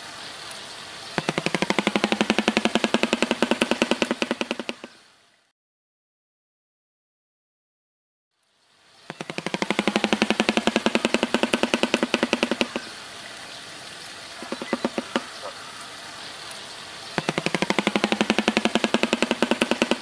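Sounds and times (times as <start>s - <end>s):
bird clattering its bill: 1.2s - 4.9s, 9.1s - 13.0s, 14.4s - 15.5s, 17.2s - 20.0s.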